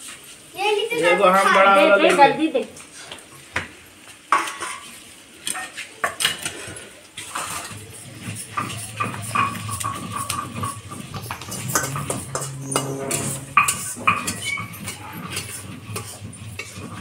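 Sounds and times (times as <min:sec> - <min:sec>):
steel dishes clinking: 0:07.3 - 0:17.0.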